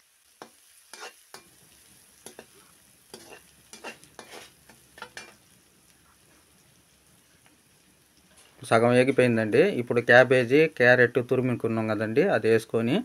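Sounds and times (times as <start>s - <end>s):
vegetables sizzling in oil: 0.0s - 13.0s
metal skimmer scraping pan: 1.0s - 1.5s, 2.3s - 5.4s.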